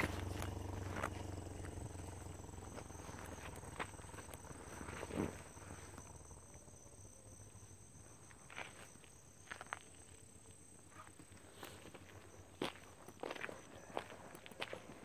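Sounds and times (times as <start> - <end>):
footsteps scuffing on dirt road: 0.0 - 1.8, 8.4 - 10.2, 10.9 - 15.0
insects trilling: 0.0 - 15.0.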